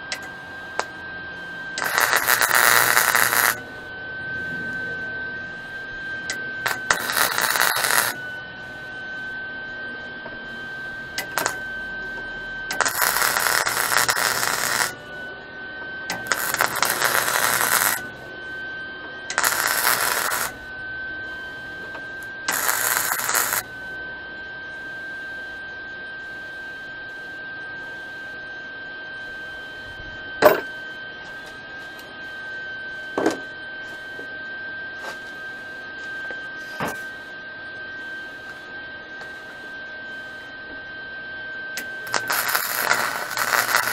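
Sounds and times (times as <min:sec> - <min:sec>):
steady high whine: 0:00.0 - 0:43.9
welder crackling: 0:00.1 - 0:01.0, 0:01.8 - 0:03.6, 0:06.3 - 0:08.2, 0:11.2 - 0:11.6, 0:12.7 - 0:15.0, 0:16.1 - 0:18.0, 0:19.3 - 0:20.6, 0:22.5 - 0:23.7, 0:41.8 - 0:43.9.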